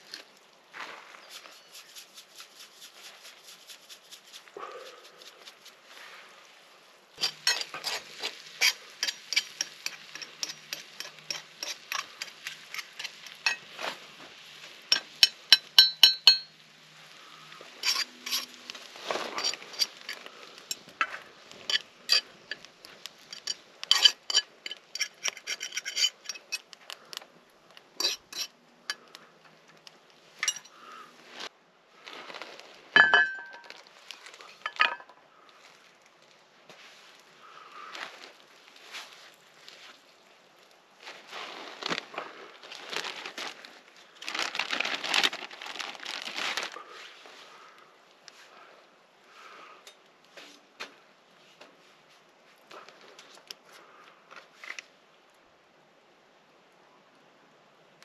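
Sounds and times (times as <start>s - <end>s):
metal utensils clinking on cookware: 7.2s - 13.7s, 14.9s - 16.5s, 17.8s - 18.6s, 21.7s - 22.7s, 23.3s - 26.6s, 30.4s - 30.7s.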